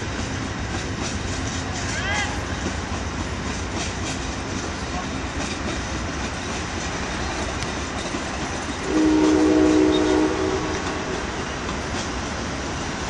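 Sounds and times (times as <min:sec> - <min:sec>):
train wheels rumbling on track: 0:00.0 - 0:13.0
train horn chord: 0:08.8 - 0:11.5.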